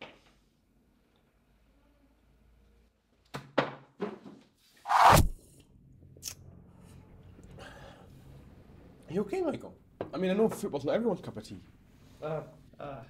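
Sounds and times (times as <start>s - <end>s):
loud slurping of tea: 4.9s - 5.3s
short sharp sounds: 4.9s - 5.4s.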